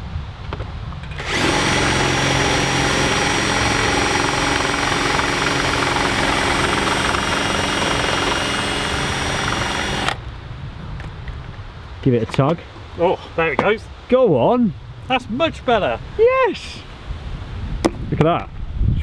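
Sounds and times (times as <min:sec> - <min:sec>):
cordless drill running: 0:01.1 - 0:10.2.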